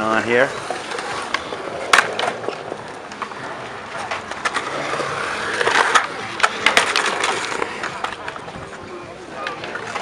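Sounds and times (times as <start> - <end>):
onlookers chattering: 0.0 - 10.0
skateboard wheels rolling on concrete: 0.0 - 10.0
skateboards clacking: 0.0 - 10.0.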